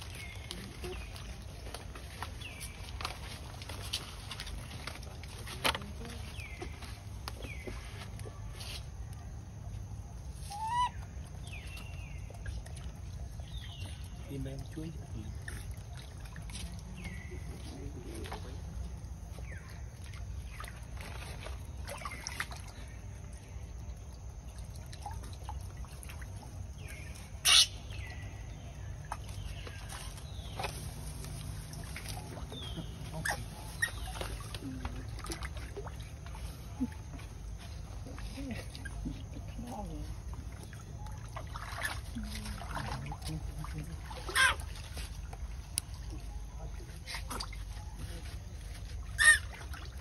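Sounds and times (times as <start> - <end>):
water trickling and splashing: 0.0 - 50.0
monkey squeaking: 10.5 - 11.0, 27.4 - 27.7, 33.1 - 34.2, 44.3 - 44.6, 49.2 - 49.5.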